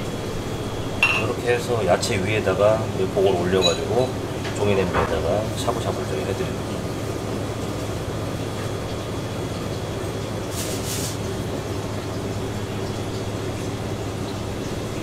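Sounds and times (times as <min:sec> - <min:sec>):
low mechanical drone: 0:00.0 - 0:10.3.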